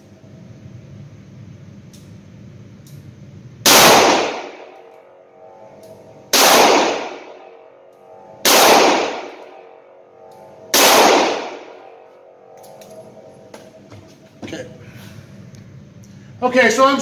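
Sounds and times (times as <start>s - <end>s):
revolver shots with echo: 3.6s - 4.9s, 6.3s - 12.0s.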